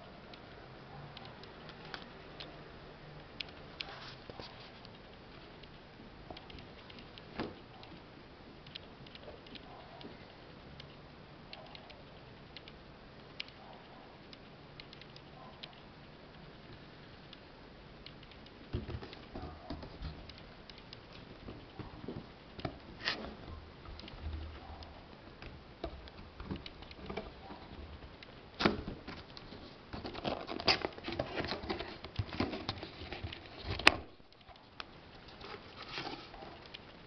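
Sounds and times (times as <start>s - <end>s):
hands handling cardboard box: 28.6s - 34.1s, 35.3s - 36.6s.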